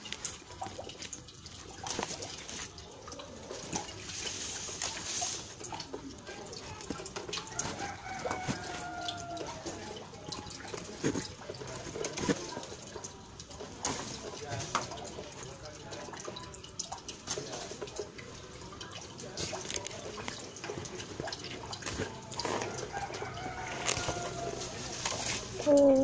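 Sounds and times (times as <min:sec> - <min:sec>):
leaves rustling and crackling: 0:00.0 - 0:13.0, 0:18.9 - 0:26.0
faint rooster crowing: 0:07.4 - 0:10.0, 0:22.6 - 0:25.1.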